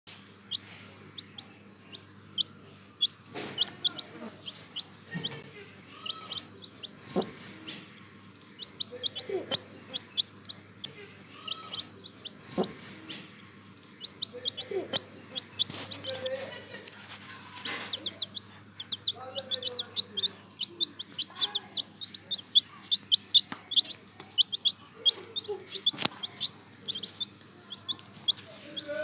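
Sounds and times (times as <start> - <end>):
baby chicks peeping: 0.1 - 29.0.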